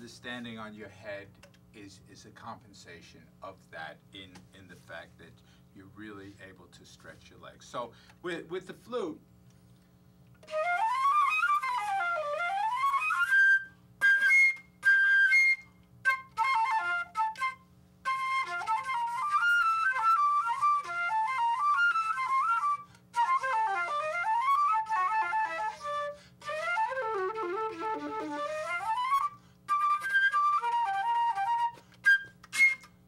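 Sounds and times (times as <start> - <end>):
solo flute playing: 10.4 - 33.0.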